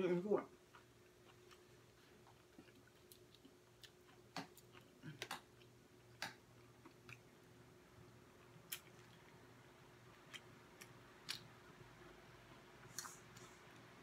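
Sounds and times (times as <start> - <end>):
crunchy food being chewed: 0.7 - 7.3.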